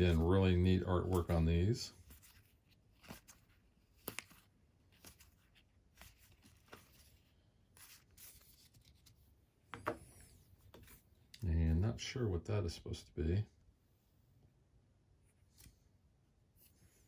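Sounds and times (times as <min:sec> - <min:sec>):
cards rubbing and flicking: 0:00.0 - 0:09.2
cards set down on mat: 0:09.7 - 0:10.9.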